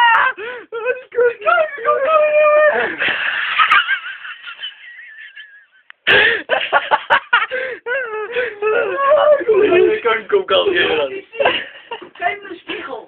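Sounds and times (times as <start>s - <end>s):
people laughing hysterically: 2.8s - 10.0s, 11.3s - 12.1s.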